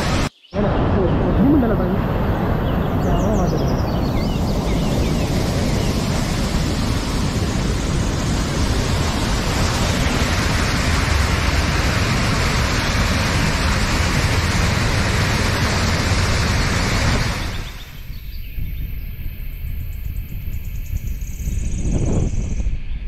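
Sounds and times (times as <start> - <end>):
waterfall rushing over rocks: 0.0 - 3.6, 4.4 - 18.0.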